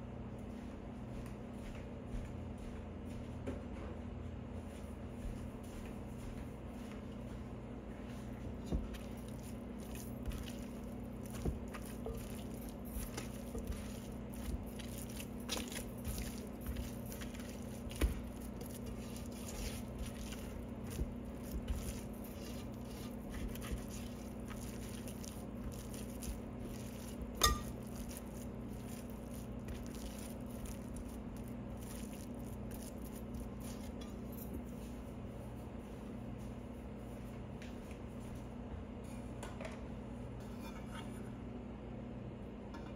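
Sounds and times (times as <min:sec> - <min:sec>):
hand kneading sticky dough: 0:06.6 - 0:37.2
clinks against metal bowl: 0:27.4 - 0:27.8.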